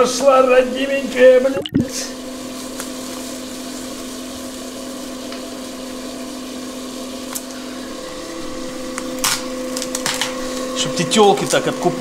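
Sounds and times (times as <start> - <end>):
electric motor humming: 3.3 - 12.0.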